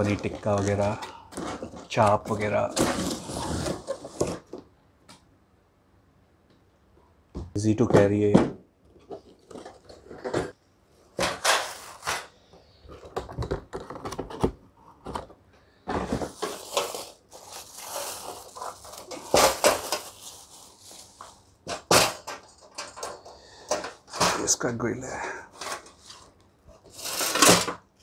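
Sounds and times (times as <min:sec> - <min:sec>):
plastic wrapping crinkling: 0:00.0 - 0:04.3, 0:16.3 - 0:21.6.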